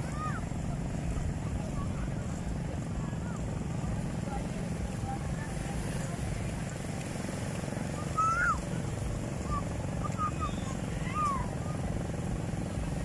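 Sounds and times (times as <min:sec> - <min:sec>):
steady low seaside rumble: 0:00.0 - 0:13.0
distant people calling: 0:07.8 - 0:12.1.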